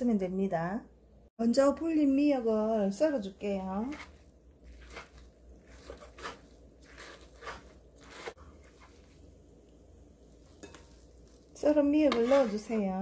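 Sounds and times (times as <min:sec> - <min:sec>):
knife chopping on wooden board: 0:03.9 - 0:08.4.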